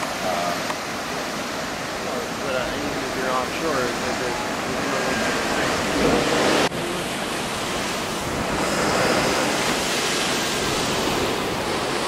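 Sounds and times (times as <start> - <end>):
waterfall rushing: 0.0 - 12.0.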